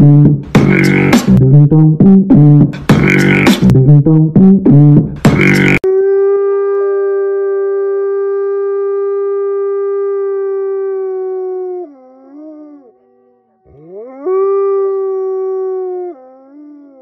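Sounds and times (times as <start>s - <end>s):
wolf howling: 5.8s - 17.0s.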